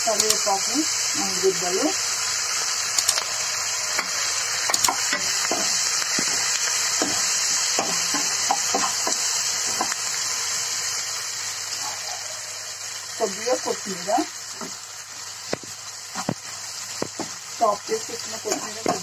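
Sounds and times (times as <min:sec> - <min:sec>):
food sizzling in hot oil: 0:00.0 - 0:19.0.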